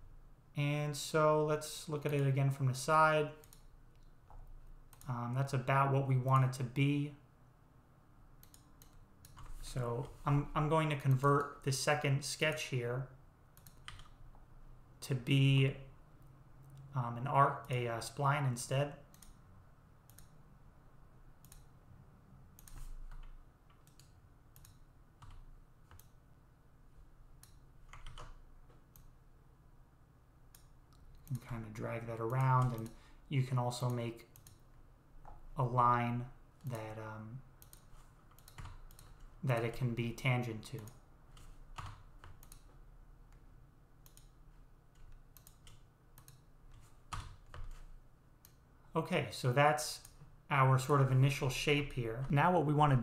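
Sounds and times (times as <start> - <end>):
low room hum: 0.0 - 53.0
computer mouse clicks: 3.4 - 5.2, 8.4 - 10.2, 13.6 - 14.2, 19.1 - 19.4, 20.1 - 20.4, 21.4 - 21.7, 22.6 - 26.2, 27.4 - 29.2, 30.5 - 31.5, 32.2 - 33.0, 33.8 - 35.4, 37.6 - 39.7, 40.8 - 43.4, 44.0 - 48.6.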